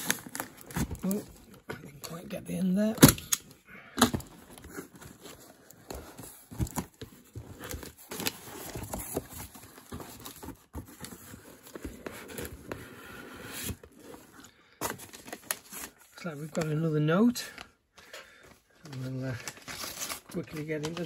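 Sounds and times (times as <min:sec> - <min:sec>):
packing paper rustling: 0:00.0 - 0:02.2, 0:18.3 - 0:21.0
cardboard box being opened: 0:04.1 - 0:15.9.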